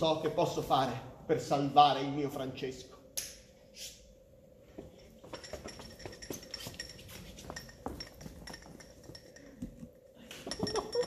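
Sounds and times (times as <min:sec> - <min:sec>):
faint high ringing: 0:04.8 - 0:11.0
light metallic clinking and jingling: 0:04.9 - 0:11.0.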